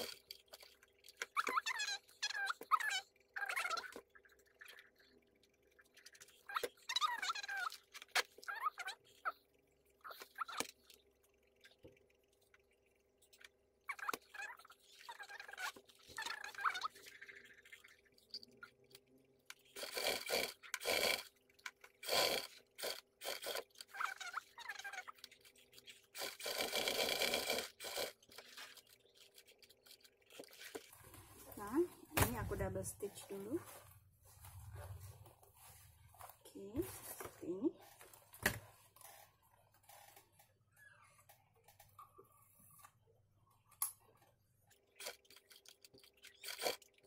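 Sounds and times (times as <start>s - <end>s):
sewing machine stitching: 19.8s - 21.3s, 26.1s - 28.9s.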